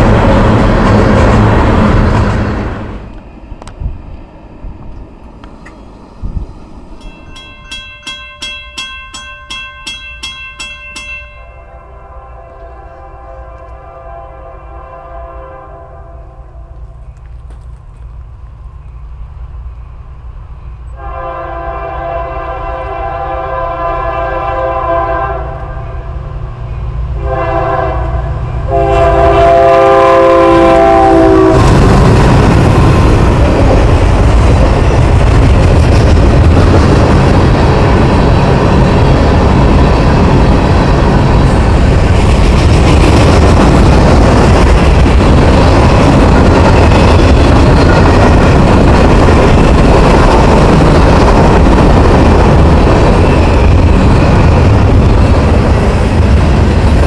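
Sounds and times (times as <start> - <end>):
train wheels on rails: 0.0 - 57.0
locomotive horn blasts: 11.5 - 16.8, 21.0 - 25.9, 27.2 - 31.7.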